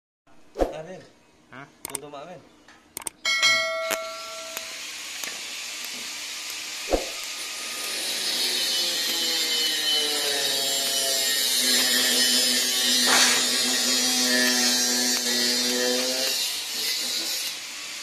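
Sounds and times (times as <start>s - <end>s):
welder click: 1.8s - 2.1s, 3.0s - 3.2s
welding arc hissing buzz: 3.9s - 18.0s.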